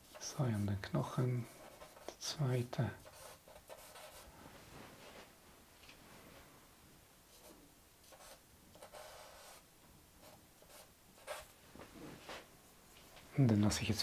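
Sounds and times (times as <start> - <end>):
charcoal scratching on paper: 3.0 - 4.3.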